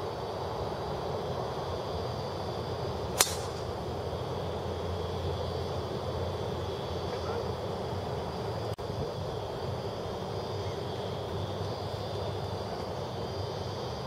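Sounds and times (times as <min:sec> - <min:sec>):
steady background noise: 0:00.0 - 0:14.0
golf ball struck off tee: 0:03.2 - 0:03.7.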